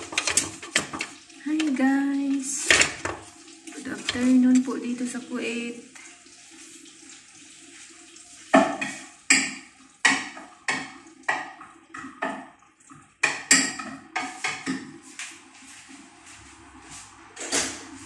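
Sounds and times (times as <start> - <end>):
utensil stirring and scraping in pot: 0.0 - 4.8.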